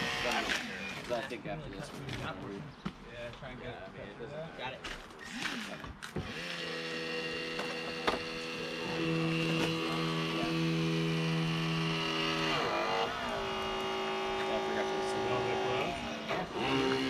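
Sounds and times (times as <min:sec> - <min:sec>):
hydraulic tool motor whining: 0:00.0 - 0:01.3, 0:05.2 - 0:17.0.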